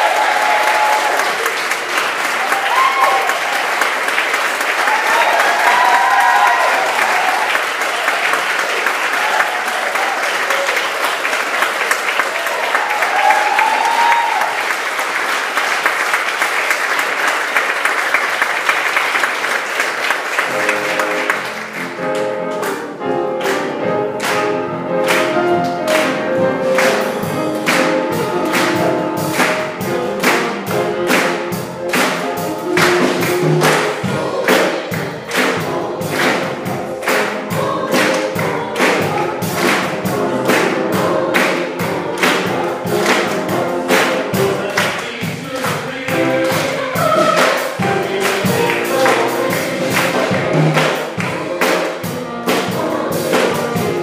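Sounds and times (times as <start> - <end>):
audience applauding: 0.0 - 52.6
piano: 0.0 - 54.0
drums: 20.4 - 54.0
gospel choir singing: 23.8 - 54.0.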